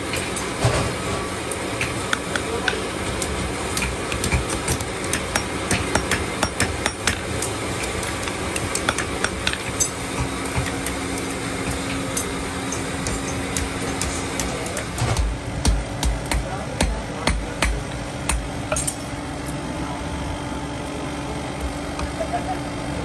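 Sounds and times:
steady background hum: 0:00.0 - 0:23.0
hammer striking iron on anvil: 0:03.8 - 0:19.1.

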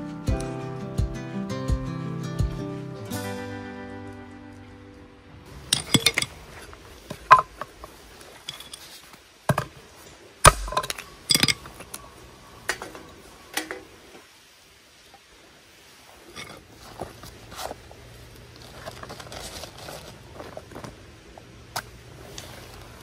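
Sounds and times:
hatchet chopping wood: 0:10.5 - 0:11.0.

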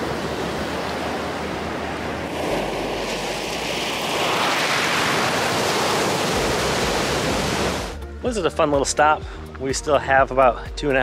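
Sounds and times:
surf washing over shells: 0:00.0 - 0:08.0.

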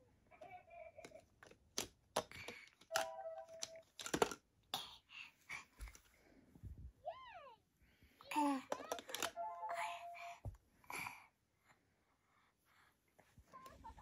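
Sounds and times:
plastic toys clicking: 0:00.9 - 0:04.5, 0:08.3 - 0:09.4.

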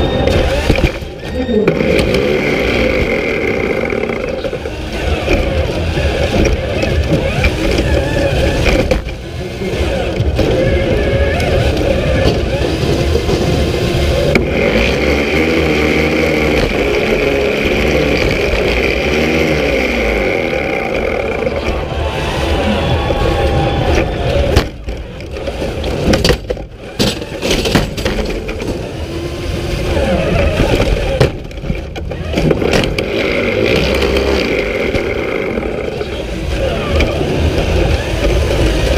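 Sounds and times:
electric motors whining: 0:00.0 - 0:38.9
low rumble of chassis: 0:00.0 - 0:38.9.

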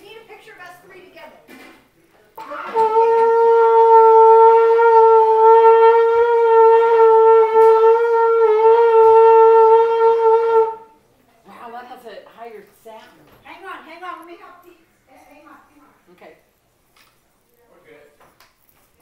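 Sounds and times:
shofar blast: 0:02.4 - 0:11.0.

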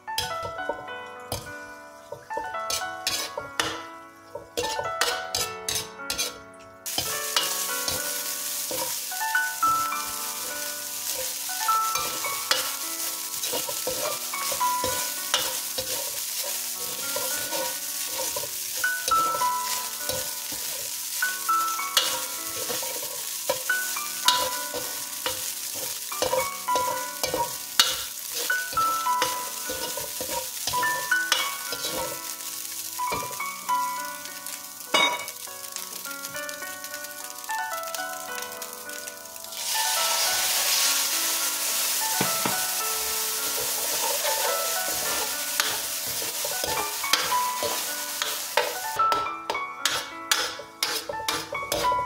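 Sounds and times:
meat sizzling in a pan: 0:00.0 - 0:52.0
spatula scraping a pan: 0:02.7 - 0:03.8, 0:04.6 - 0:09.1, 0:11.0 - 0:32.2, 0:43.4 - 0:52.0.

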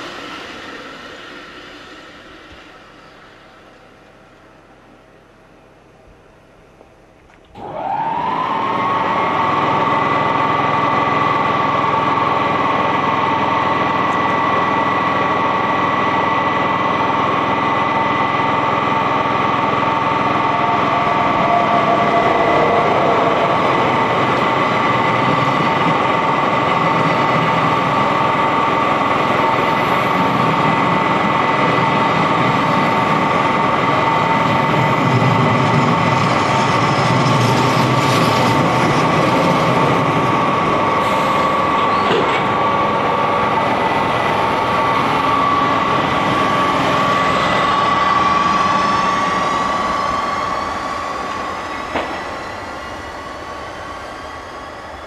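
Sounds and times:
train passing at speed: 0:00.0 - 0:05.2, 0:07.6 - 0:55.0
electric locomotive whine: 0:00.0 - 0:55.0
coaches rolling on rails: 0:09.2 - 0:55.0.

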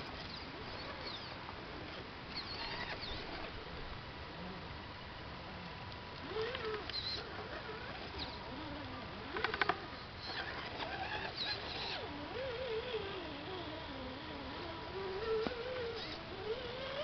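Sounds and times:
toy car electric motor whining: 0:02.4 - 0:03.2, 0:06.3 - 0:17.0.

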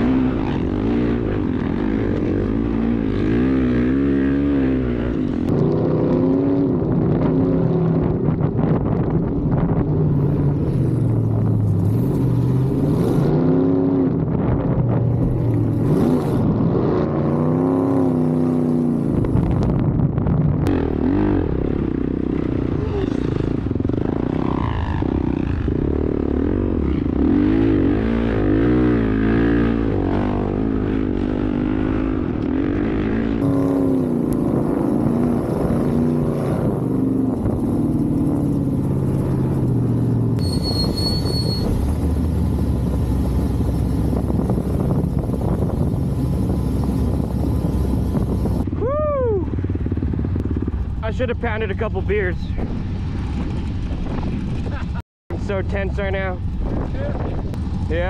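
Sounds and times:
dirt bike engine revving: 0:00.0 - 0:06.6, 0:20.7 - 0:42.0.

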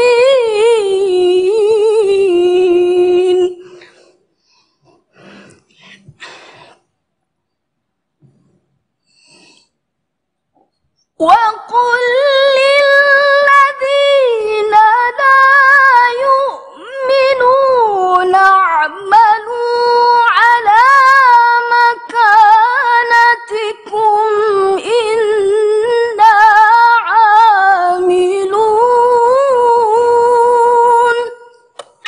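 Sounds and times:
woman reciting melodically: 0:00.0 - 0:04.0, 0:11.2 - 0:32.0.

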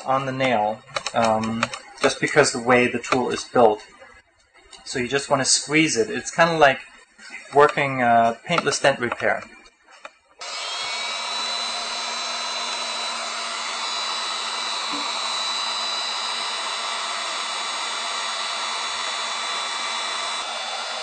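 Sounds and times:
heat gun blowing air: 0:10.4 - 0:21.0.

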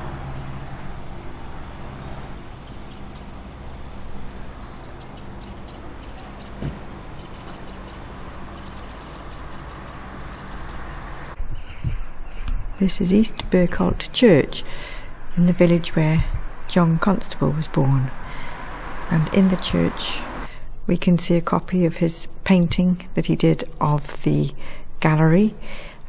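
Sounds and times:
steady low hum: 0:00.0 - 0:26.0
songbird chirping: 0:00.3 - 0:00.6, 0:01.5 - 0:21.4.

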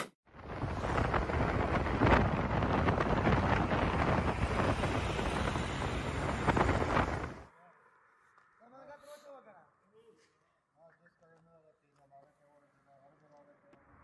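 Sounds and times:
rumbling crackly background noise: 0:00.4 - 0:07.5.

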